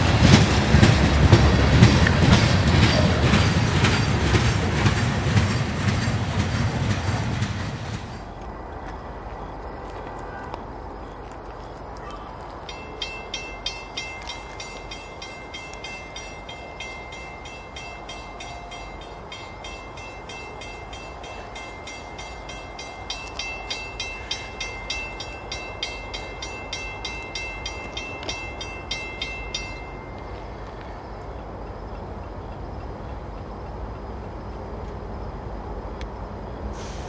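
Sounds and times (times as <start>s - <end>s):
railroad bell ringing: 0.0s - 4.9s, 12.0s - 31.2s
diesel train rumble: 0.0s - 37.0s.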